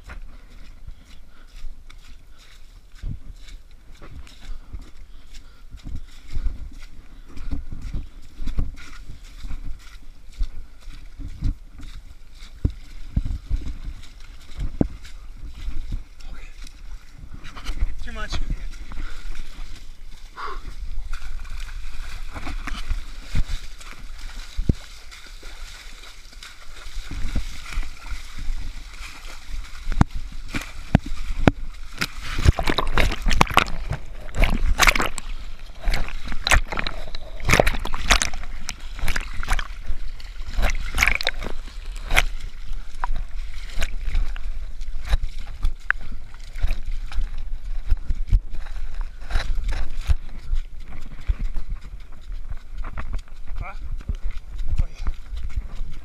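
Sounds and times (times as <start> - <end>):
scrambling over wet mud: 0.0 - 56.0
splashing through muddy water: 0.0 - 56.0.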